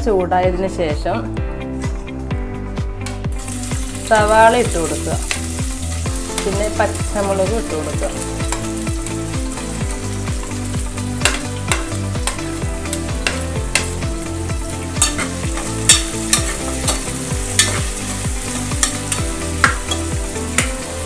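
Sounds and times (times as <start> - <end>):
onions sizzling in hot oil: 3.3 - 21.0
metal spoon scraping pot: 15.0 - 17.0.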